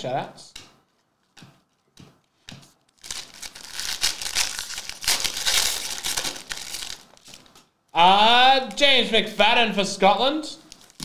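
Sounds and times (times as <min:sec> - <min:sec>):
plastic wrapper crinkling: 0:02.8 - 0:07.8, 0:10.6 - 0:11.0.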